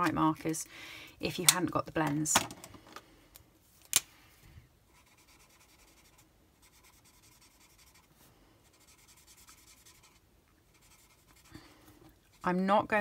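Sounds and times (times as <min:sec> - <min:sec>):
marker scratching on cardstock: 0:04.9 - 0:11.5.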